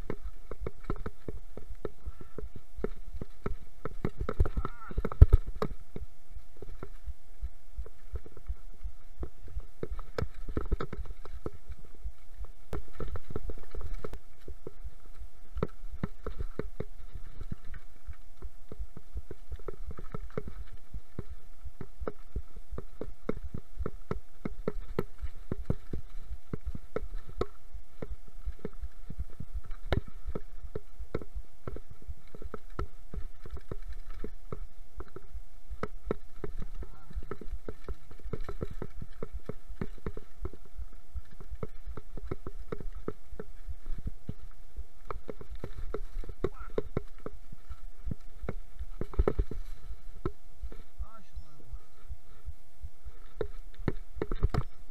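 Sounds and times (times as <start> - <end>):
bike clattering over stones: 0.0 - 7.1, 9.2 - 51.0, 53.1 - 54.9
faint steady hum: 0.0 - 54.9.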